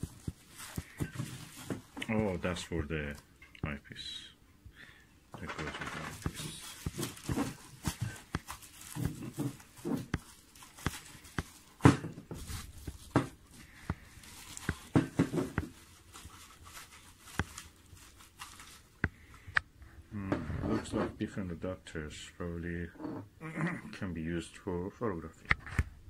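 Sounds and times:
bubble wrap and plastic bag crinkling: 0:00.0 - 0:03.2, 0:05.4 - 0:19.3.

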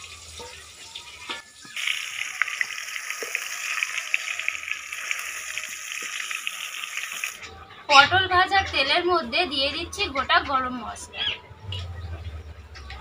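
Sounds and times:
vegetables sizzling in oil: 0:00.0 - 0:07.4.

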